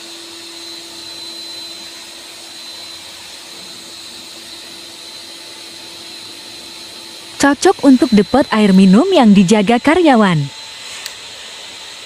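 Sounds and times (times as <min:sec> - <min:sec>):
faint hum: 0:07.3 - 0:10.6
thin high tone: 0:07.4 - 0:10.6.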